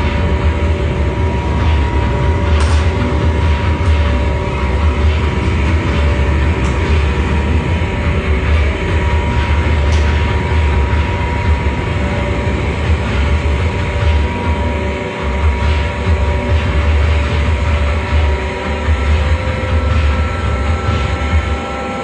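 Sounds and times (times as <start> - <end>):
distorted electric guitar drone: 0.0 - 22.0.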